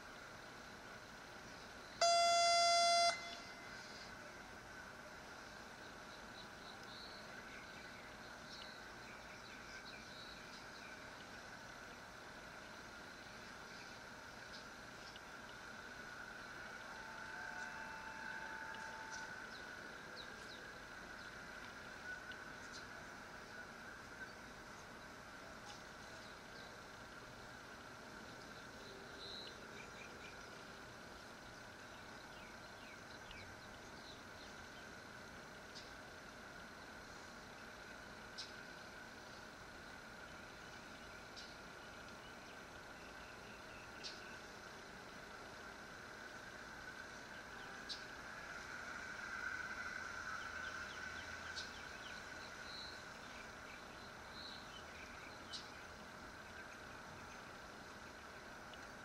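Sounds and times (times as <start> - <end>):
background hiss: 0.0 - 59.0
high hum: 0.0 - 59.0
faint high chirps: 1.9 - 4.4.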